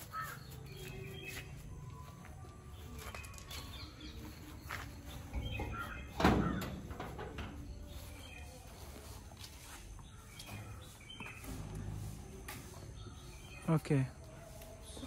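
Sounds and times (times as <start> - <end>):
birds chirping: 0.0 - 15.0
metal door clanking open: 5.3 - 7.7.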